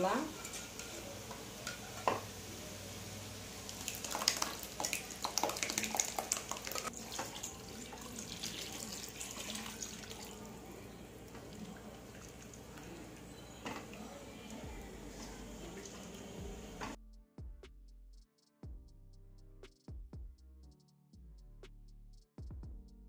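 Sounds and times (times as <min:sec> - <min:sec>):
utensils clicking and scraping pan: 0:00.0 - 0:02.3
liquid sizzling in hot pan: 0:00.0 - 0:14.3.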